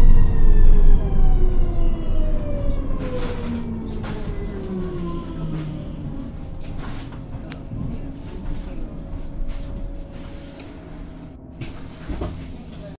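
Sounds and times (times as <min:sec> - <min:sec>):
low road rumble: 0:00.0 - 0:12.9
brief high squeal: 0:08.6 - 0:09.5.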